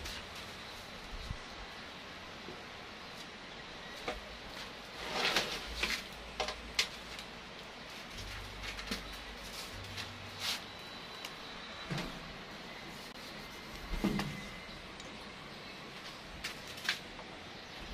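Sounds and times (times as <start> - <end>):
rustles scrapes and clicks of handling: 4.9 - 7.3.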